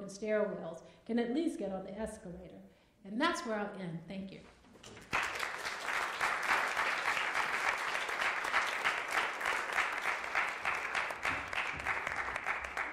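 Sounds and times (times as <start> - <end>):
audience applauding: 5.0 - 12.9.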